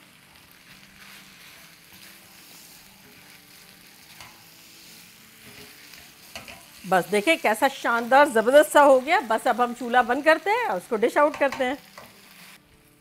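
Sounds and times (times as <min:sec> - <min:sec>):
stir-fry sizzling in a pan: 0:00.0 - 0:13.0
spatula scraping a pan: 0:00.6 - 0:09.0.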